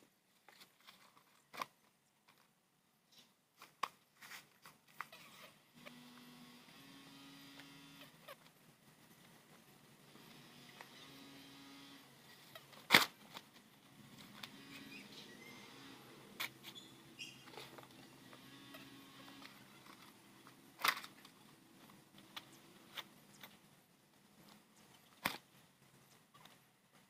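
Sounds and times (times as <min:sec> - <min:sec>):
faint steady background: 0:00.0 - 0:27.0.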